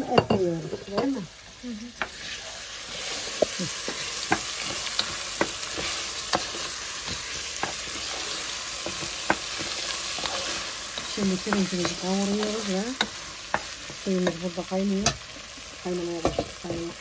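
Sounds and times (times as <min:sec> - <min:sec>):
rice sizzling in butter: 0:00.0 - 0:17.0
wooden spoon scraping a pot: 0:02.0 - 0:14.4.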